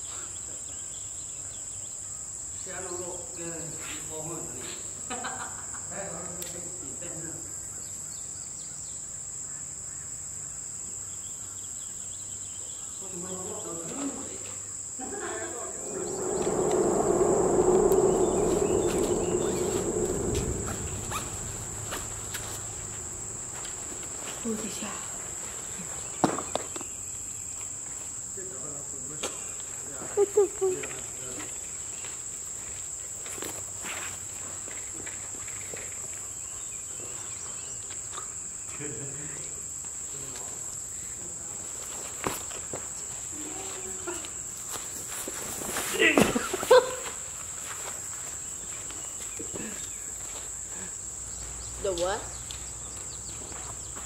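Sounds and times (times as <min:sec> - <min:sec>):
insects droning: 0:00.0 - 0:54.0
insects trilling: 0:07.1 - 0:32.1
broad rushing noise: 0:15.5 - 0:24.5.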